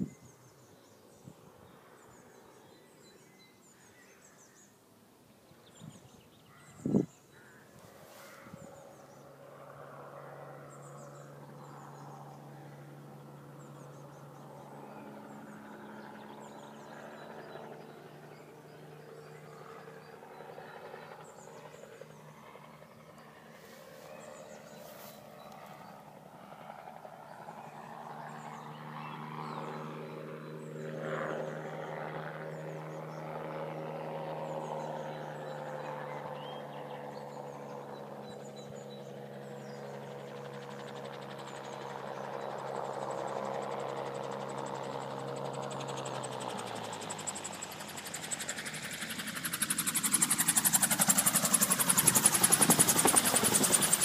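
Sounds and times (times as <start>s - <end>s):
birds chirping: 0.0s - 9.4s, 10.6s - 33.6s
gyroplane engine and propeller: 5.4s - 54.0s.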